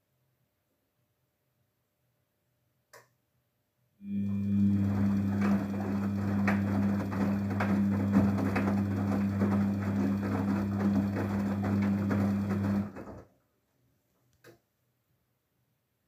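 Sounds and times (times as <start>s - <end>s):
washing machine motor hum: 4.0s - 13.3s.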